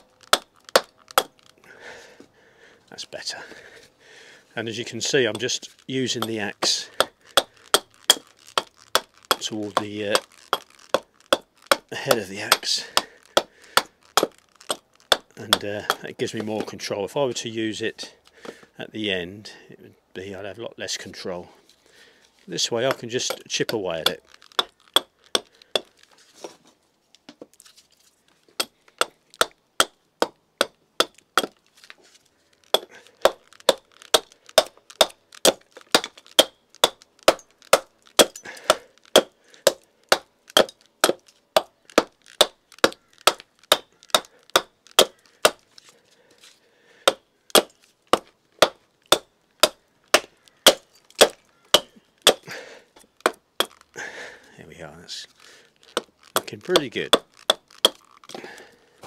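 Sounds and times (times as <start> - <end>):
axe chopping wood: 0.0 - 1.6, 4.8 - 16.8, 22.8 - 26.0, 28.6 - 31.6, 32.6 - 46.0, 47.0 - 54.4, 55.8 - 58.7.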